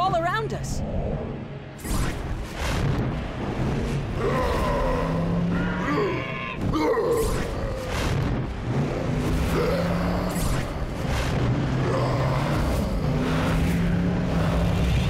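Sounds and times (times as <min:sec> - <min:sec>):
cartoon dragons roaring: 0:04.1 - 0:08.0, 0:09.2 - 0:15.0.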